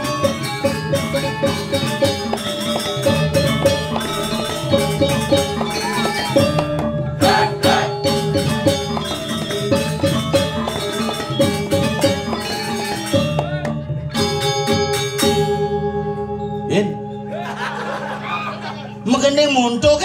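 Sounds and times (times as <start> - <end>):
drum strokes: 0.0 - 15.6.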